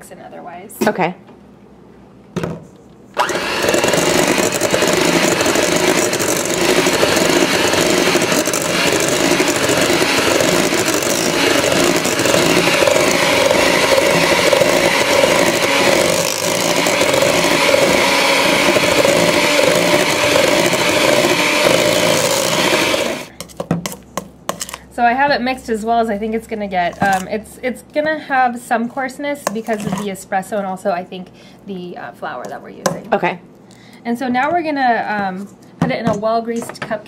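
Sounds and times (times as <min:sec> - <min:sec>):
electric hand mixer whirring: 0:03.2 - 0:23.3.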